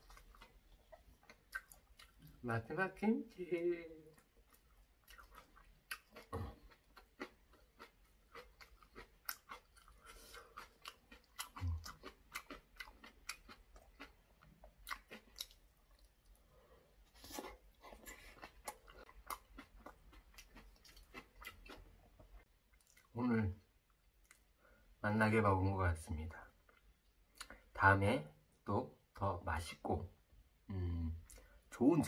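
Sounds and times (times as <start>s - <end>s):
person chewing with mouth clicks: 0.0s - 2.4s, 4.1s - 16.4s, 17.2s - 23.1s, 26.6s - 27.7s.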